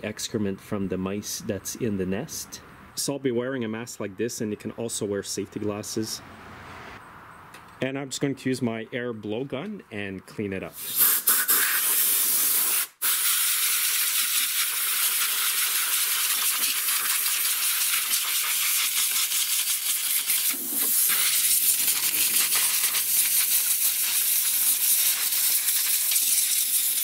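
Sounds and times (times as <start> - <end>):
compressed air hissing: 10.8 - 27.0.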